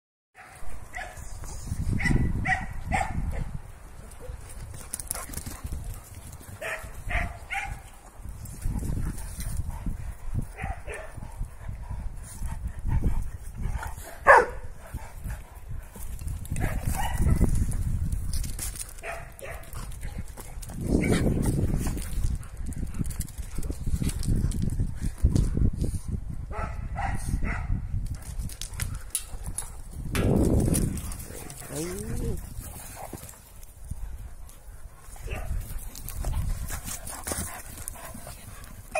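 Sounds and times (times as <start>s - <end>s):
dogs barking and yipping: 0.4s - 3.5s, 6.4s - 8.1s, 10.4s - 11.3s, 13.6s - 15.3s, 16.4s - 17.6s, 19.0s - 20.2s, 30.8s - 38.9s.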